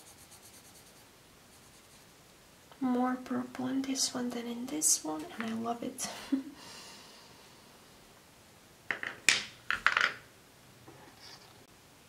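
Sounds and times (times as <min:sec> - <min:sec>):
wooden pencils clicking and knocking: 0:05.2 - 0:05.6, 0:08.9 - 0:10.2.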